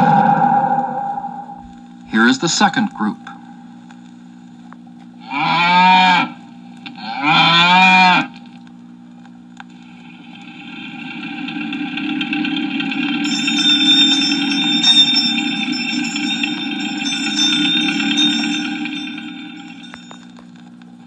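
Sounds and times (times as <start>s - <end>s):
cow mooing: 5.2s - 6.4s, 7.0s - 8.3s
high tones: 13.2s - 20.4s.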